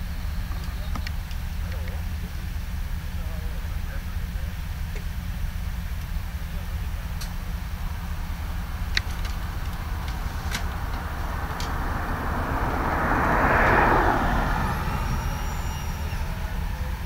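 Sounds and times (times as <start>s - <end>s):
idling vehicles low rumble: 0.0s - 17.0s
vehicle passing: 7.4s - 17.0s.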